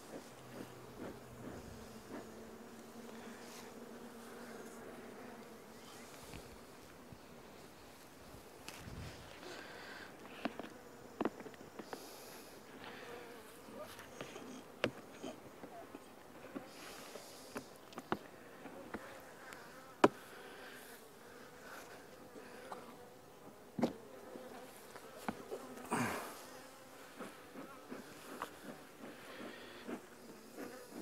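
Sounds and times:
honey bees buzzing: 0.0s - 31.0s.

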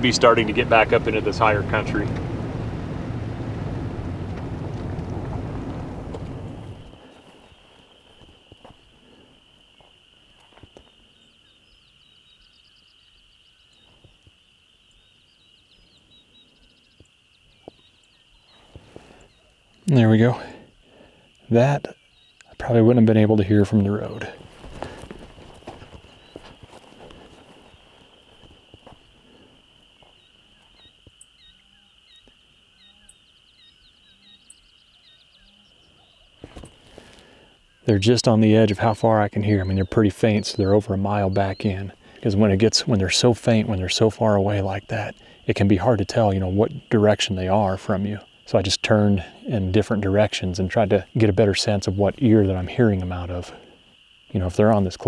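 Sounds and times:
distant turkeys gobbling: 0.0s - 10.9s
frogs or insects calling: 0.0s - 55.0s.

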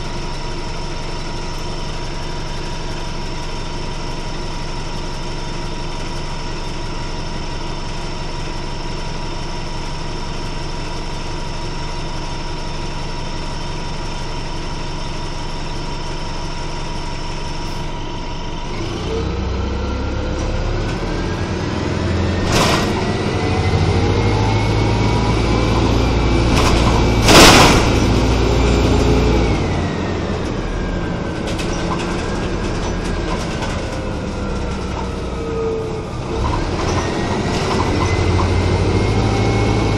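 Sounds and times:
bus engine: 0.0s - 39.9s
drivetrain whine: 0.0s - 39.9s
knocks and rattles: 26.4s - 28.2s.

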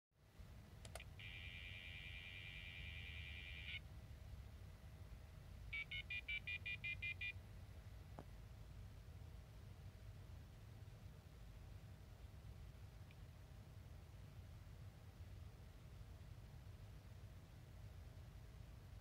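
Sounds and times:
modem tone-dialing: 1.0s - 3.8s, 5.8s - 7.3s
dial tone: 1.2s - 3.8s.

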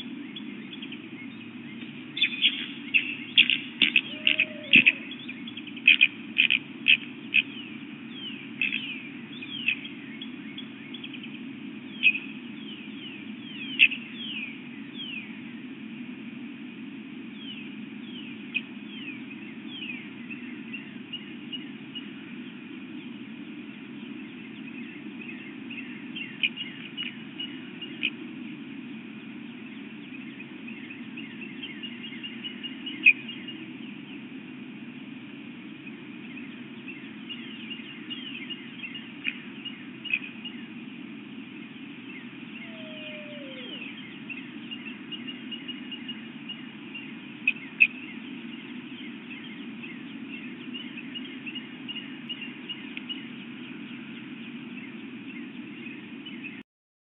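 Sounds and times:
steady low hum: 0.0s - 56.6s
low downward sliding call: 3.8s - 5.4s, 42.4s - 44.5s
high chirps: 42.6s - 44.5s.

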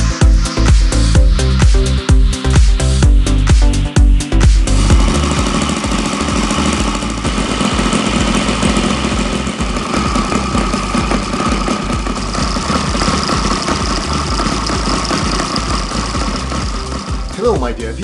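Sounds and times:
model engine running: 4.5s - 17.9s.

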